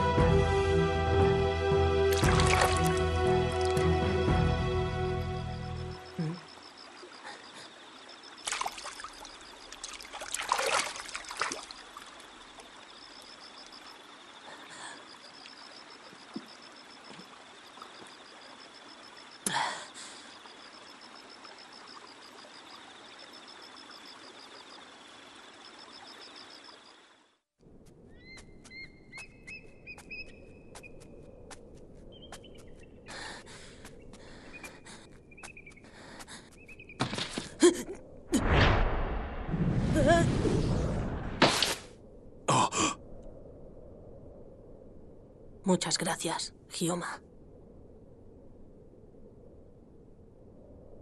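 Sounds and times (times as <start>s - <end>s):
stream flowing: 2.0s - 4.3s, 6.0s - 27.3s
water splashes: 2.1s - 3.8s, 6.7s - 13.8s.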